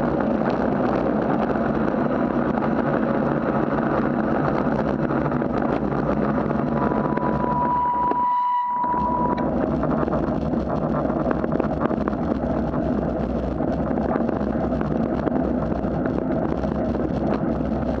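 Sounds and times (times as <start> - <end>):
bike rattles and clicks: 0.0 - 6.9, 9.4 - 18.0
bicycle tyres on wet asphalt: 0.0 - 8.0, 8.8 - 18.0
wind noise: 0.0 - 18.0
steady high tone: 6.0 - 9.8.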